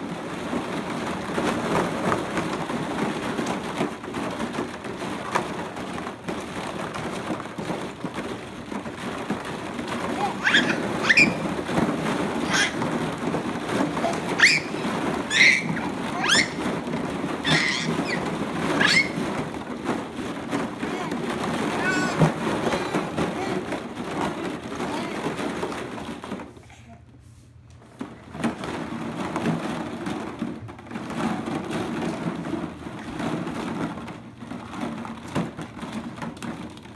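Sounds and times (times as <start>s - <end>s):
plastic balls clattering: 0.0s - 26.7s, 27.8s - 36.9s
toddler squealing: 10.1s - 11.8s, 12.4s - 13.0s, 13.9s - 19.3s, 21.8s - 22.8s.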